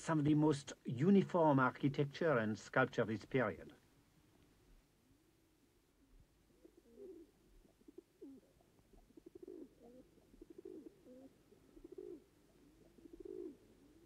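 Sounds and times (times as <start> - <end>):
faint pigeons cooing: 4.7 - 14.0.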